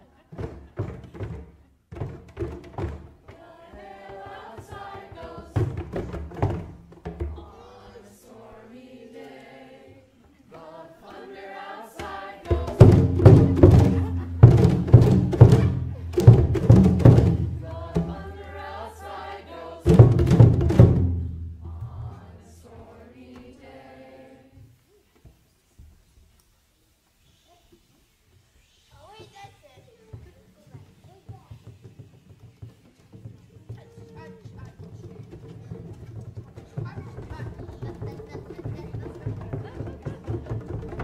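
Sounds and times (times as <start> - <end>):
hand drums beating: 0.3 - 7.7, 12.0 - 19.2, 19.8 - 22.4, 29.2 - 41.0
group of voices chanting: 7.4 - 20.2.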